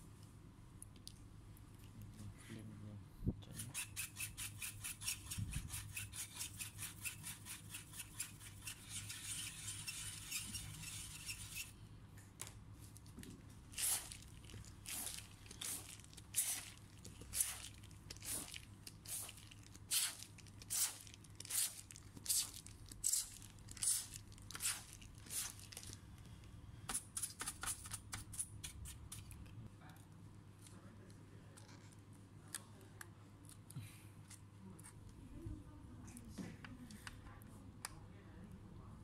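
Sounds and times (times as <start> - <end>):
brush sweeping a fan grille: 3.6 - 11.8
faint handling sounds: 29.1 - 38.0.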